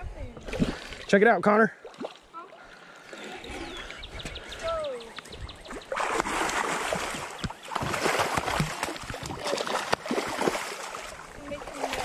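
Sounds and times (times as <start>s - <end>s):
fish thrashing and splashing: 5.7s - 12.0s.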